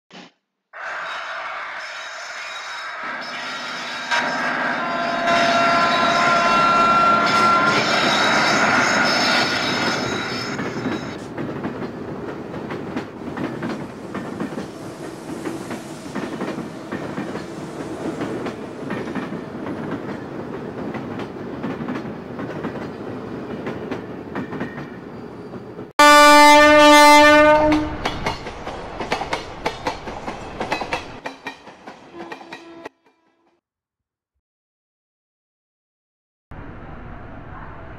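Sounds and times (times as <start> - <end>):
train horn blast: 4.0 - 10.1, 26.0 - 28.0, 32.1 - 33.5
train wheels clicking over joints: 9.5 - 25.0, 27.9 - 32.7.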